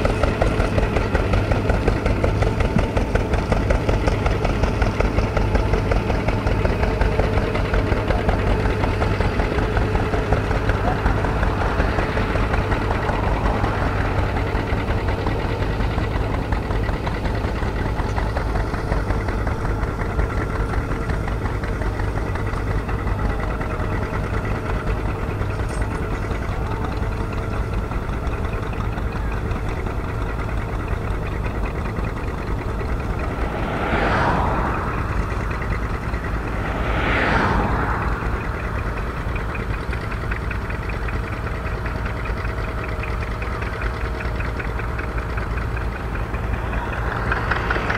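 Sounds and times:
tractor engine puttering: 0.0 - 47.9
brief whooshes: 33.0 - 39.4.

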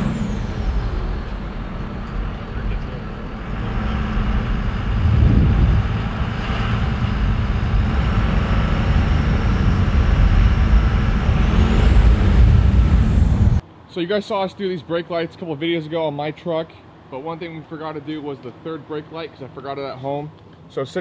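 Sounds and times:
diesel engine rumble: 0.0 - 13.6
road noise: 0.0 - 21.0.

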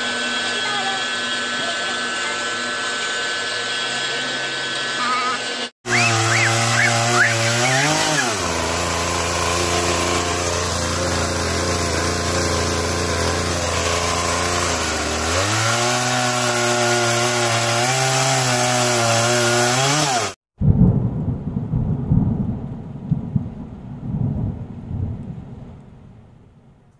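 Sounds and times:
chainsaw cutting wood: 0.0 - 20.4
low thunder-like rumble: 20.6 - 26.8.

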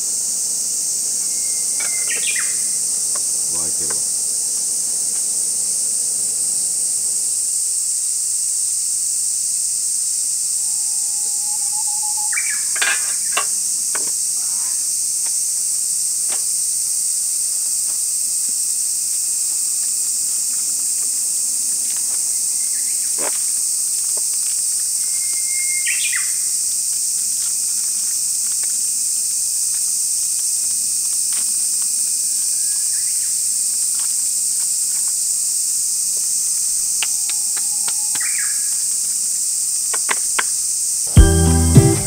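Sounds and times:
high-pitched insect drone: 0.0 - 21.6
bird chirps: 1.4 - 2.6, 10.8 - 13.4.

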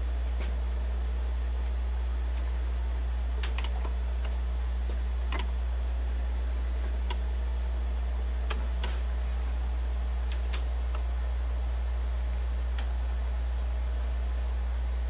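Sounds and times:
low electrical hum: 0.0 - 15.0
turntable tonearm clicks: 3.4 - 5.6.

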